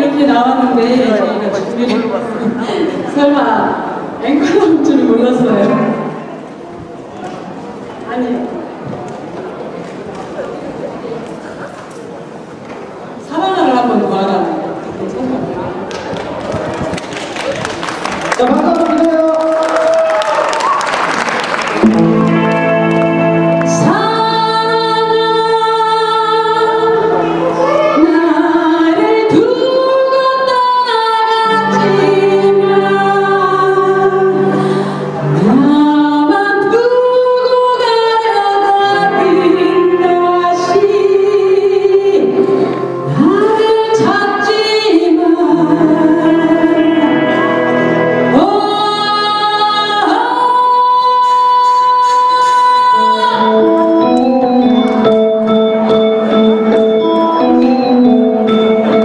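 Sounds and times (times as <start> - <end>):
electric guitar: 15.9 - 30.5, 31.3 - 59.0
keyboard: 21.6 - 59.0
bass guitar: 21.8 - 25.3
woman singing lead: 23.6 - 54.8.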